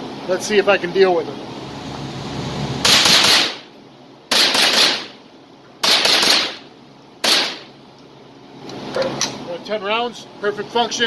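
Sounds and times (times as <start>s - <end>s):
rifle shots with echo: 2.8s - 3.7s, 4.3s - 5.2s, 5.8s - 7.7s.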